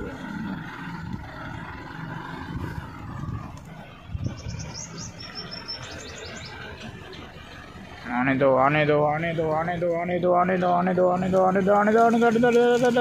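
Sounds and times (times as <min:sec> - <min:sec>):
tractor engine running: 0:00.0 - 0:13.0
small bird chirping: 0:04.2 - 0:07.3.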